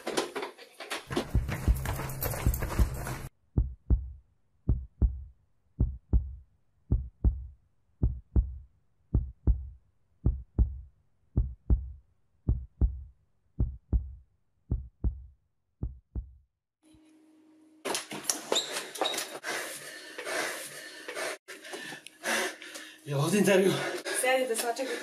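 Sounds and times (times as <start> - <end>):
heartbeat double thump: 1.1 - 3.0, 3.6 - 16.4.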